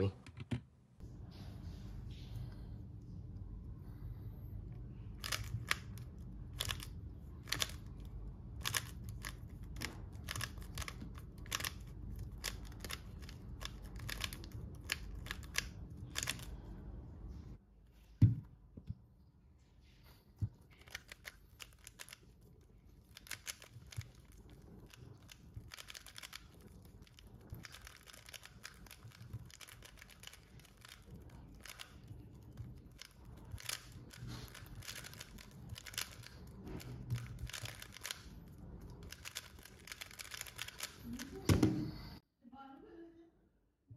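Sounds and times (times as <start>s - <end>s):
puzzle cube clicking turns: 5.1s - 16.6s, 20.7s - 41.5s.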